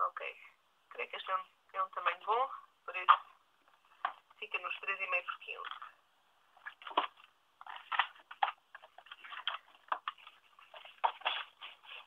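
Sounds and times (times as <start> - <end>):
paper rustling and tapping: 6.6 - 12.0.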